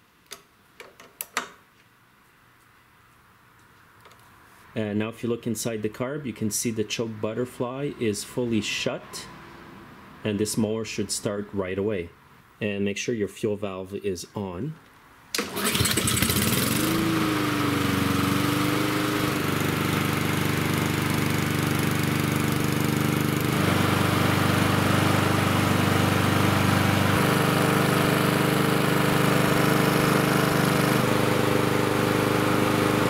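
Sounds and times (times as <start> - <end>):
lawnmower engine running: 15.4 - 33.0.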